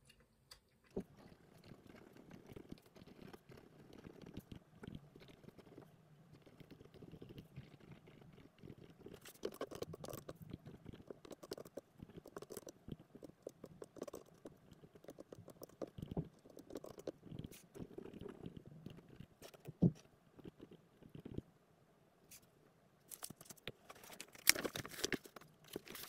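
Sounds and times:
pen scratching on paper: 15.0 - 19.7.

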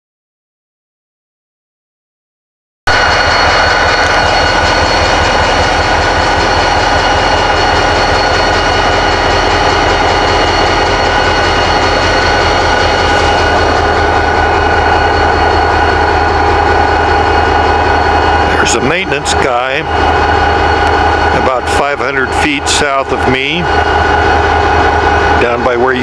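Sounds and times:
locomotive engines idling: 2.9 - 26.0
steady high whine: 2.9 - 26.0.

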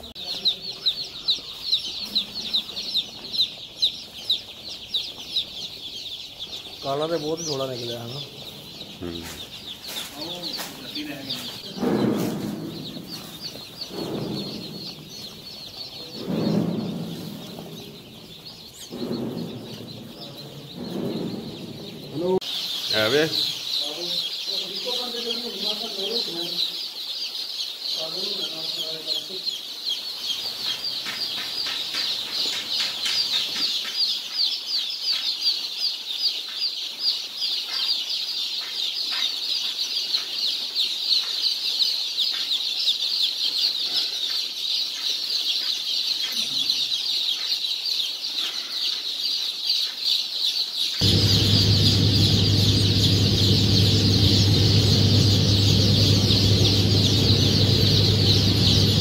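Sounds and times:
chicks peeping: 0.0 - 59.0
low hum: 51.0 - 59.0.

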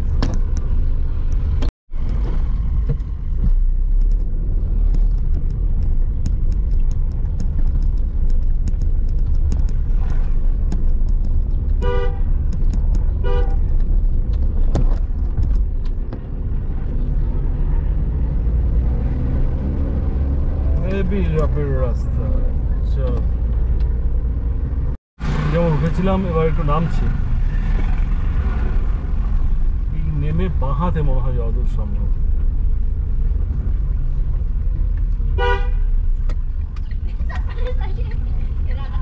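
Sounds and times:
car engine labouring low rumble: 0.0 - 39.0
car horn honks: 11.8 - 12.3, 13.2 - 13.6, 35.4 - 35.9.

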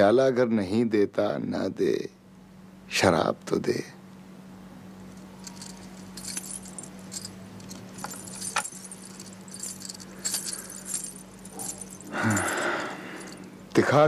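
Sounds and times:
steady low hum: 0.0 - 14.0
small metal pieces jingling: 5.1 - 13.5.

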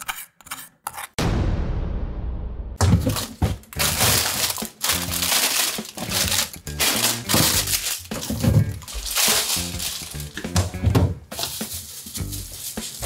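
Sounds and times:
crinkling and rustling: 2.8 - 13.0
background music: 3.1 - 13.0.

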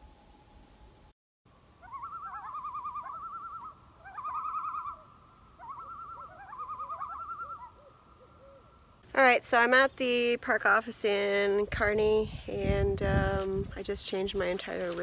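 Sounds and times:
loons tremolo calls: 1.8 - 8.8.

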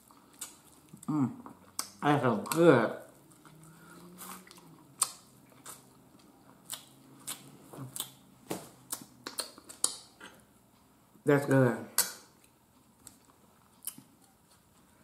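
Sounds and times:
chewing: 0.0 - 8.2, 12.4 - 15.0
person humming mmm: 1.0 - 1.4.

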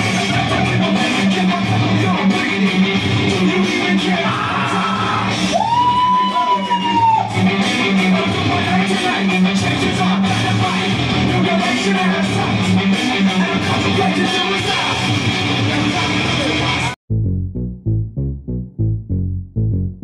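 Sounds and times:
loud dance music: 0.0 - 17.0.

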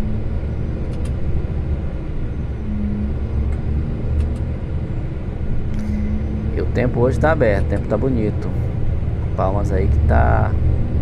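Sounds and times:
truck engine and tyres rumbling: 0.0 - 11.0
light clicks: 0.9 - 1.2, 4.2 - 4.5
faint hum: 5.0 - 10.5.

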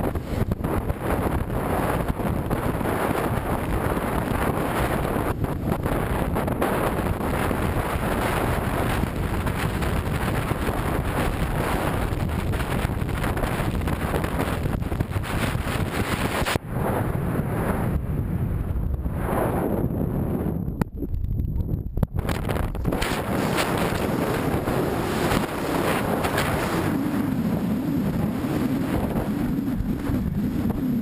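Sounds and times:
wind buffeting microphone: 0.0 - 31.0
vehicle running and tyre noise: 20.2 - 31.0.

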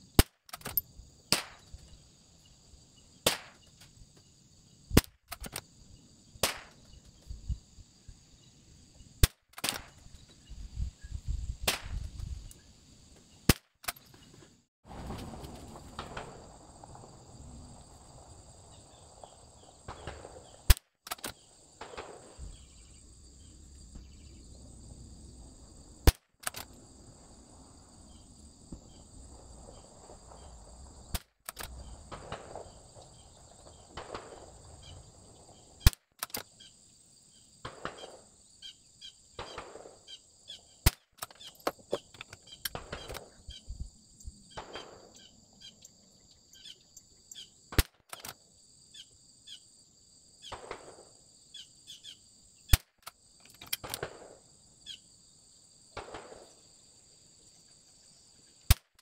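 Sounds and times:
rifle handling noises: 0.2 - 0.9, 5.0 - 5.6, 20.7 - 21.5, 26.4 - 26.8, 31.2 - 31.8, 35.9 - 36.5, 40.9 - 43.4, 47.8 - 48.4, 52.8 - 54.1
rifle shots: 19.9 - 22.8, 31.1 - 34.6, 37.6 - 38.2, 39.4 - 40.1, 44.5 - 45.2, 50.4 - 51.1, 53.8 - 54.4, 56.0 - 56.6.

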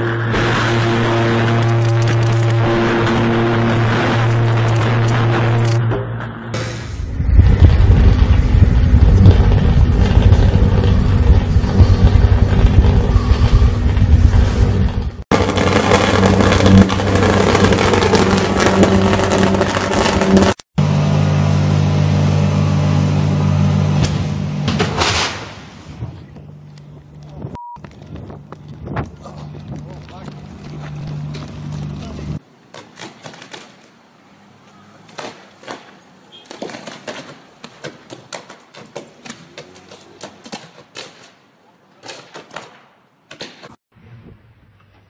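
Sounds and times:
electrical arc crackling: 0.2 - 5.8, 6.6 - 20.6
power line arcing crackling pops: 24.0 - 25.6.

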